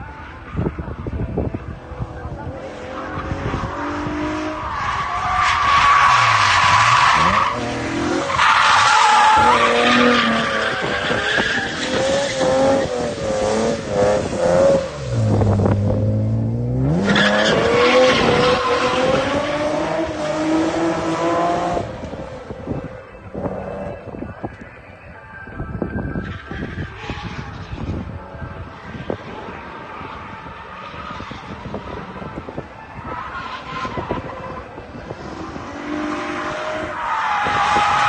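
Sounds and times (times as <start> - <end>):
tyre squeal: 4.6 - 13.0
car engine revving: 6.0 - 24.2.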